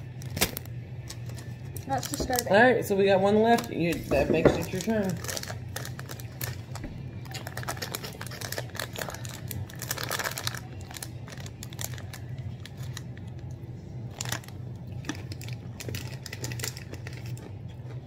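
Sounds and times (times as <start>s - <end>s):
low steady hum: 0.0s - 18.0s
plastic wrapper crinkling: 3.4s - 13.5s, 14.1s - 17.5s.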